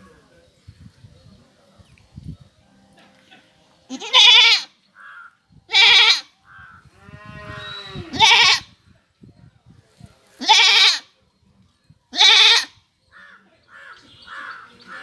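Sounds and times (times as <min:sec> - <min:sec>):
goat bleating: 0:03.9 - 0:04.7, 0:05.7 - 0:06.3, 0:07.3 - 0:08.7, 0:10.4 - 0:11.0, 0:12.1 - 0:12.7
low drawn-out goat call: 0:03.9 - 0:08.7.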